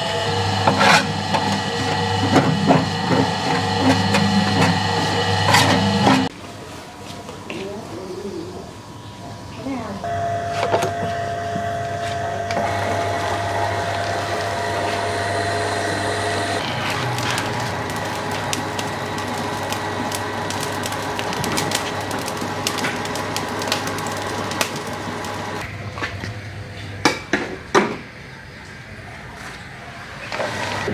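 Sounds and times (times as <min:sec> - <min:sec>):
motor-driven noodle press humming: 0:00.0 - 0:06.3, 0:10.1 - 0:25.7.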